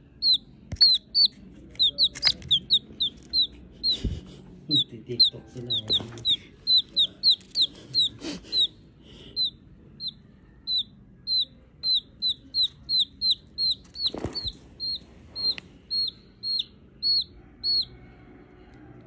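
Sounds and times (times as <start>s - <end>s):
chick peeping: 0.0s - 19.0s.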